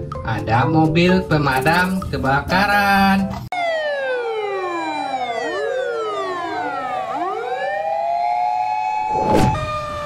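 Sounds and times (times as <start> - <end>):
fire engine sirens wailing: 3.5 - 10.0.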